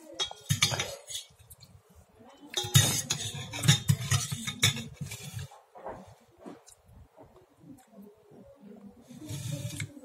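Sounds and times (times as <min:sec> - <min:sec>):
cutlery clinking against a bowl: 0:00.1 - 0:01.6, 0:02.5 - 0:05.5.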